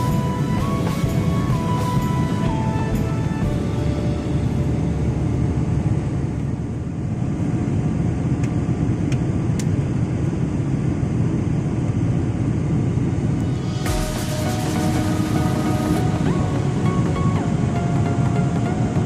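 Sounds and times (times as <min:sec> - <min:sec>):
airliner cabin engine rumble: 0:00.0 - 0:19.0.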